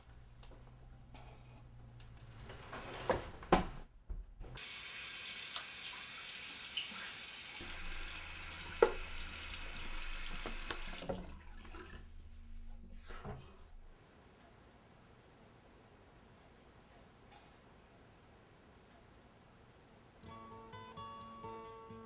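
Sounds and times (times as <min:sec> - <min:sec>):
tap water running: 0:04.6 - 0:13.4.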